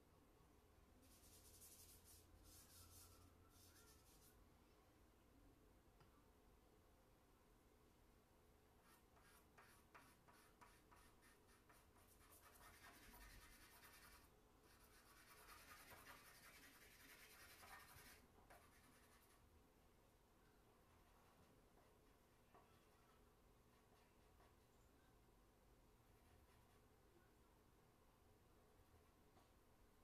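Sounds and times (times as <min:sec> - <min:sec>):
charcoal scratching on paper: 0:01.0 - 0:04.4, 0:08.8 - 0:19.4.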